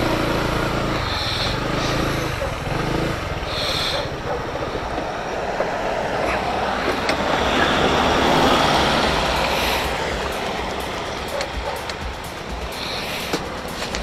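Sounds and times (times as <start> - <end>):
engine and road noise rushing: 0.0 - 14.0
low rumble: 4.6 - 14.0.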